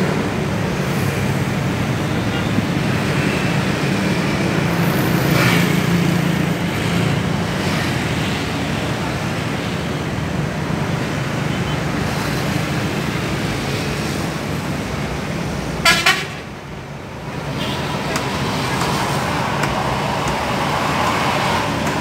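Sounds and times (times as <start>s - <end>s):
horn toots: 15.8s - 16.4s.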